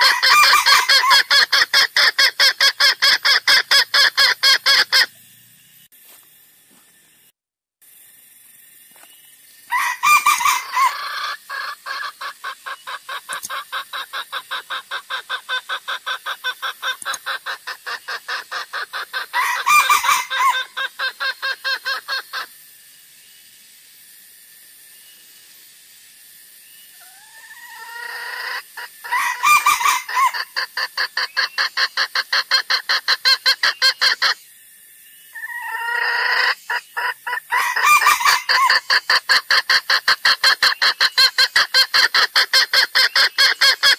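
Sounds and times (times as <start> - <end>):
junglefowl clucking and cackling: 0.0 - 5.1, 9.7 - 22.6, 27.0 - 34.4, 35.3 - 43.9
faint hiss: 20.0 - 37.7.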